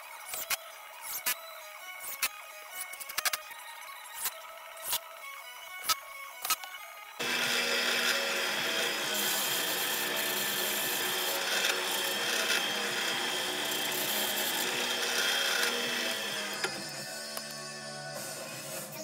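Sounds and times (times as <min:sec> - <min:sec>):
drill bit rasping into wood: 0:07.2 - 0:16.9
drill press motor hum: 0:07.2 - 0:17.6.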